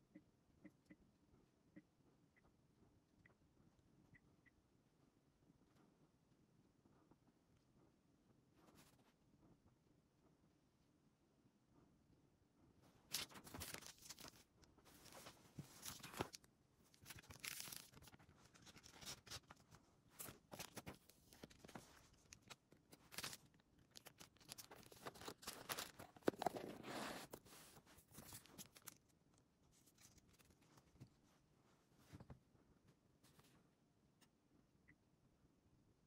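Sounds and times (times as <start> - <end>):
rustling and scraping handling: 12.9 - 33.7.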